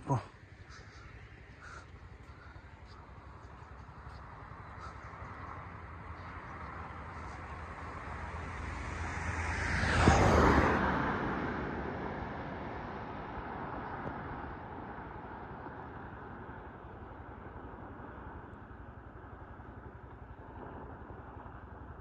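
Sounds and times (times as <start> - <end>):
vehicle passing by: 0.1 - 15.7.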